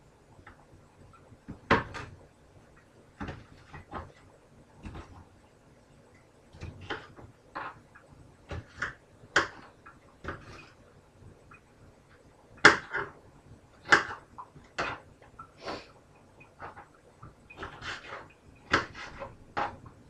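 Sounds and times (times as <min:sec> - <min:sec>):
knife chopping on plastic board: 0:01.5 - 0:02.2, 0:08.5 - 0:10.6, 0:12.6 - 0:13.2, 0:13.8 - 0:15.0, 0:17.6 - 0:19.9.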